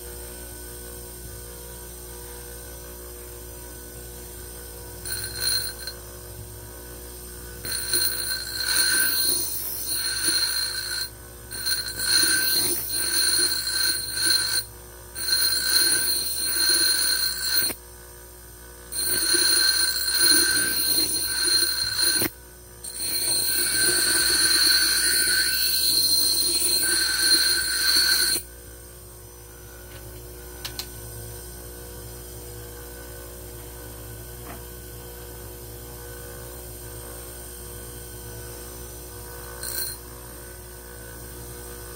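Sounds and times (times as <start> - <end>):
grinder motor hum: 0.0 - 41.9
grinder wheel grinding steel: 5.0 - 6.1, 7.5 - 17.8, 18.8 - 28.5, 39.4 - 40.0.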